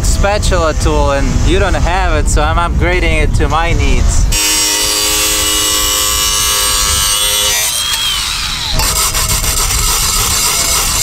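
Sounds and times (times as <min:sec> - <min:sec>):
power tool cutting steel: 0:04.3 - 0:11.0.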